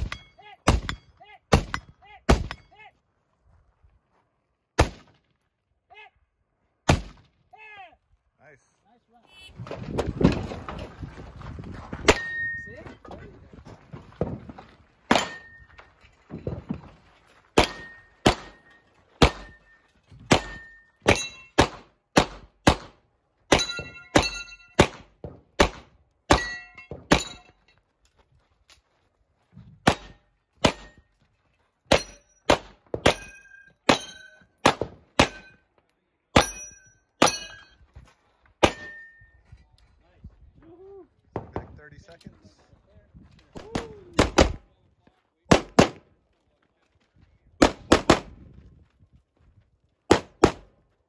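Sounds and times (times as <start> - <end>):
pistol shots: 4.8 - 5.2, 6.9 - 7.3, 17.6 - 19.6, 20.3 - 27.4, 29.8 - 31.0, 31.9 - 33.3, 33.9 - 35.6, 38.6 - 39.1, 43.6 - 44.6, 45.5 - 46.0, 47.6 - 48.3, 50.1 - 50.8
steel targets ringing: 12.1 - 12.7, 15.1 - 15.8, 17.6 - 21.6, 23.5 - 24.8, 26.3 - 27.7, 31.9 - 32.5, 33.1 - 34.6, 35.2 - 35.7, 36.4 - 37.8, 38.6 - 39.4.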